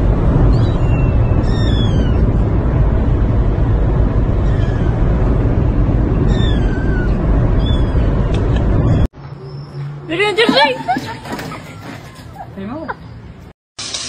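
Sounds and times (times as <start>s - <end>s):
car noise rumble: 0.0s - 9.4s
kitten meowing: 0.7s - 2.2s, 6.3s - 8.1s.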